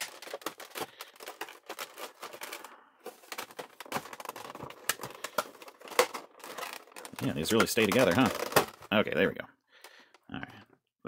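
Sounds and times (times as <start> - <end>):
plastic tray crackling and clicking: 0.0 - 2.7, 3.3 - 8.9.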